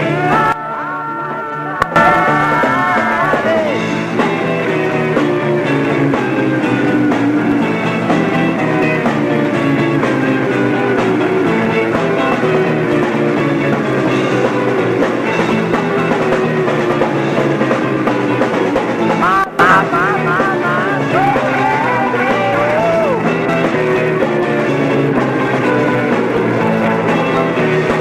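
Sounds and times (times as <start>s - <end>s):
rock band playing: 0.0s - 28.0s
electric guitar melodic notes: 19.1s - 23.6s.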